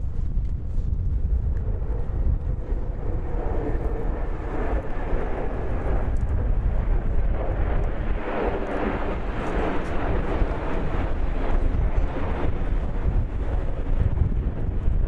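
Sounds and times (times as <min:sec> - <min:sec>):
jet engines roaring overhead: 0:00.0 - 0:15.0
steady low rumble: 0:00.0 - 0:15.0.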